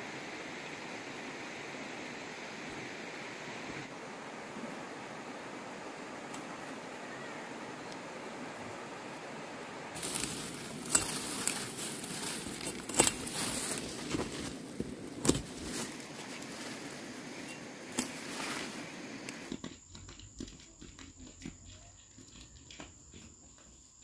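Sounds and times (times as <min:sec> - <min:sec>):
leaves and vines rustling: 0:03.3 - 0:19.5
stems snapping: 0:10.0 - 0:14.5.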